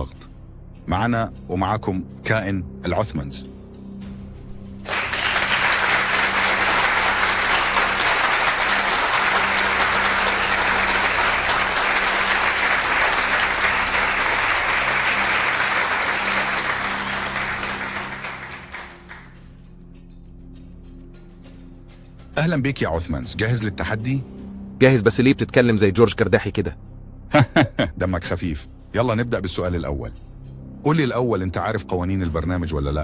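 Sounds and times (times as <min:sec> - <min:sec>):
quiet background music: 0:00.0 - 0:33.0
studio audience applause: 0:04.8 - 0:19.4.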